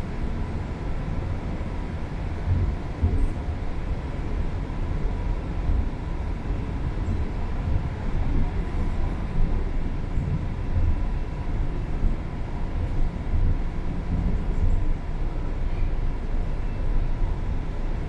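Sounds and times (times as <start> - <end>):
train rumble: 0.0 - 18.0
wheels on rail: 0.0 - 18.0.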